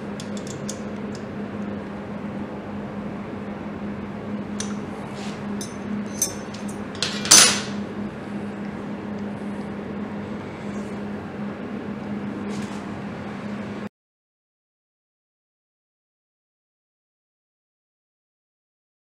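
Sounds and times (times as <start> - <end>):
steady low hum: 0.0 - 13.9
light clicks and metallic clinks: 5.6 - 7.6.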